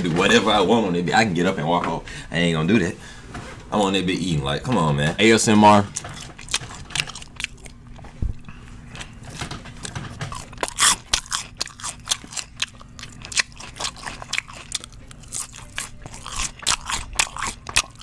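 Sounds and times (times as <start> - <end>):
person chewing crunchy food: 5.9 - 18.0.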